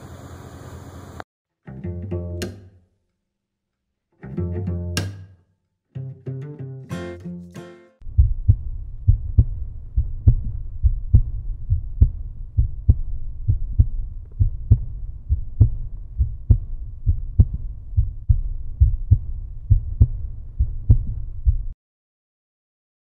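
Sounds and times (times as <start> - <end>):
heavy low heartbeat thumping: 8.0 - 21.8
low rumble: 8.0 - 21.8.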